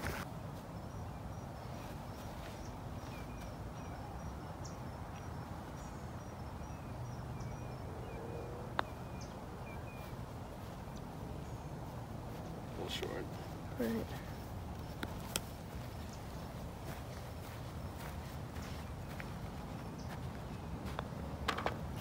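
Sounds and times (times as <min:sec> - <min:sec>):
low outdoor hum: 0:00.0 - 0:22.0
birds chirping: 0:00.6 - 0:22.0
putter striking golf ball: 0:21.4 - 0:21.8.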